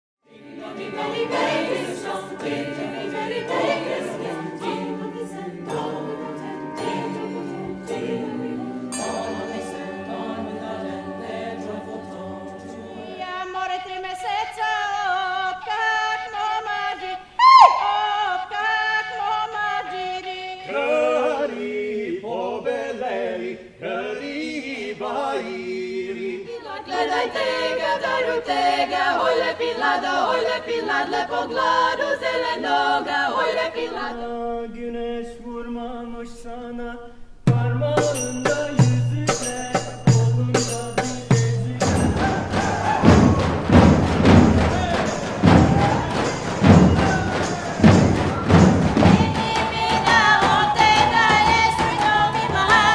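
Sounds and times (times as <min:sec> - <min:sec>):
women singing in harmony: 0:00.2 - 0:36.6, 0:41.6 - 0:52.9
folk dance music ensemble: 0:39.8 - 0:52.9
bass drums beating: 0:40.1 - 0:52.9.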